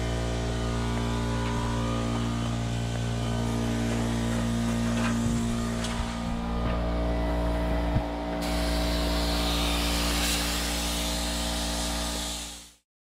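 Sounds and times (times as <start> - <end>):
low hum: 0.0 - 12.5
spray gun hissing: 8.4 - 12.8.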